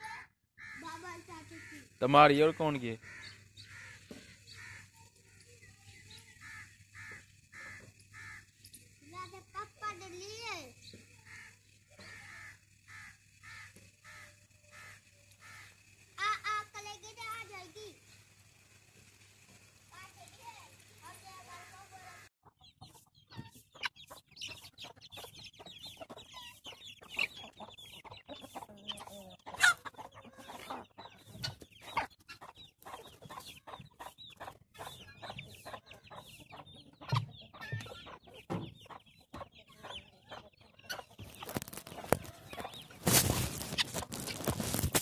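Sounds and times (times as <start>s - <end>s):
chickens clucking: 0.6s - 18.2s, 19.4s - 45.0s
high chirping: 22.5s - 44.5s.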